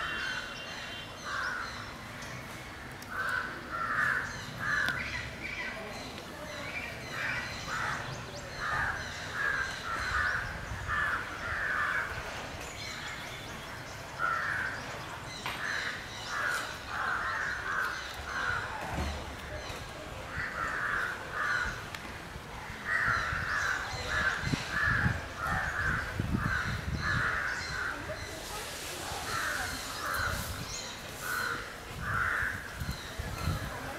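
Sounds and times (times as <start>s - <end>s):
crows cawing: 3.1s - 5.0s, 20.3s - 21.8s, 31.2s - 32.8s.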